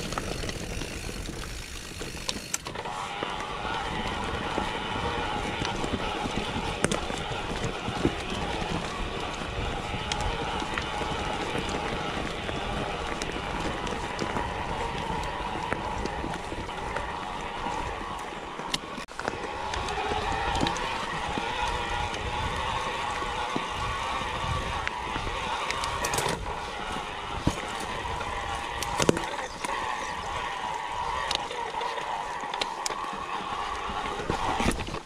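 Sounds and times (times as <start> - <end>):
bike knocking and rattling on rocks: 0.0 - 2.9
bike tyre and drivetrain noise: 0.0 - 35.0.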